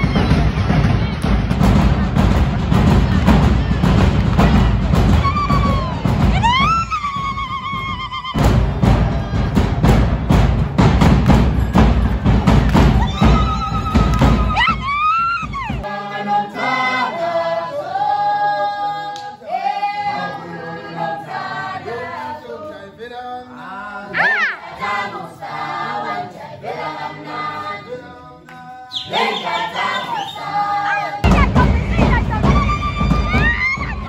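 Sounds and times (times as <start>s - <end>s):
heavy drum and stamp beat: 0.0s - 15.9s, 30.6s - 34.0s
group singing unaccompanied: 0.0s - 34.0s
shrill rising cry: 24.1s - 24.7s.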